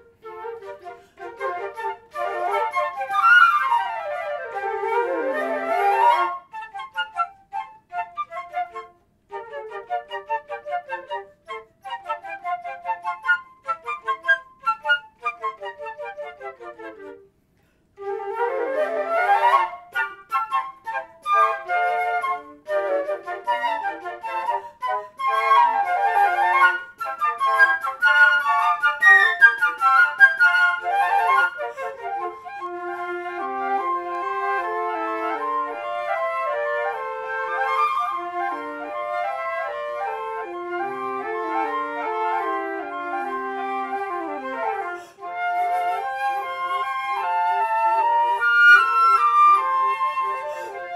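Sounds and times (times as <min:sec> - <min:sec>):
flute quartet playing: 0:00.0 - 0:50.9.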